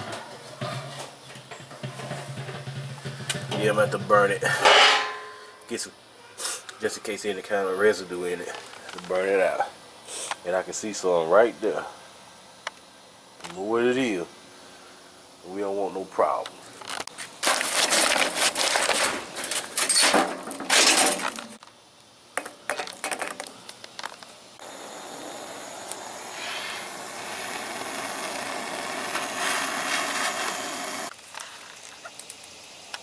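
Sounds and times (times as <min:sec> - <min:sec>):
clattering around metal chimney starter: 0:00.0 - 0:05.4
propane torch hissing: 0:09.4 - 0:11.0, 0:24.6 - 0:33.0.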